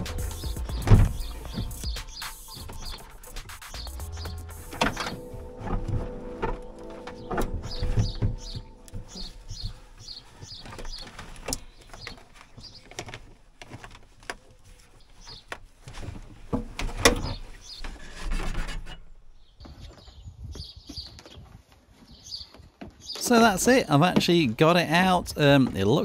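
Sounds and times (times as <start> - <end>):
bird chirping: 0.0 - 13.3, 14.4 - 16.2, 17.1 - 18.1
plastic unit clunking and rattling: 0.1 - 2.0, 4.7 - 9.8, 15.3 - 17.6.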